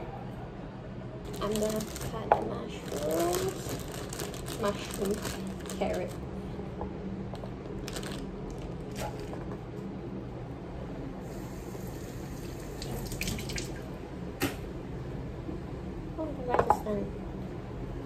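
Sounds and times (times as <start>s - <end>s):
kitchen tap running: 11.3s - 13.9s.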